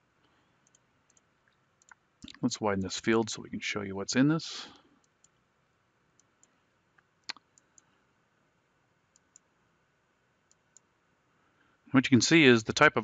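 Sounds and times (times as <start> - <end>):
computer mouse clicks: 0.6 - 2.4, 9.1 - 9.5.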